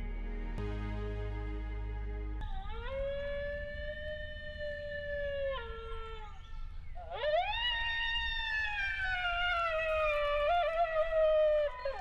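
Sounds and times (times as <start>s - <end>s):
coyote howls: 2.7s - 12.0s.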